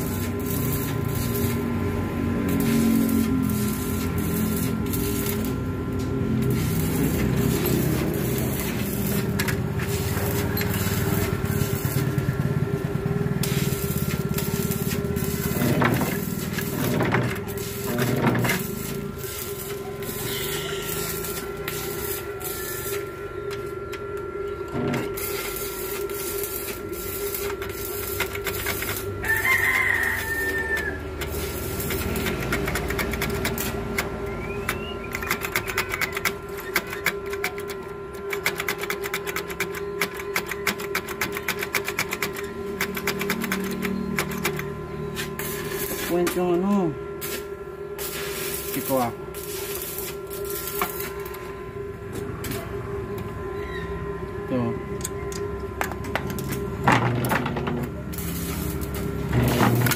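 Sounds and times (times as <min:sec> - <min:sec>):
steady hum: 0:00.0 - 0:59.9
rooster crowing: 0:19.8 - 0:23.2, 0:29.0 - 0:31.6, 0:53.4 - 0:55.6.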